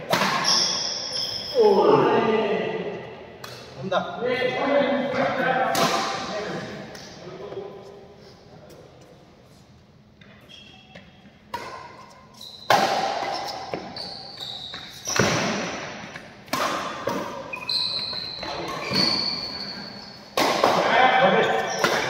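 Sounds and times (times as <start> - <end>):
shoes squeaking on court: 0.2 - 1.6, 10.1 - 16.2, 17.0 - 20.4, 21.4 - 22.0.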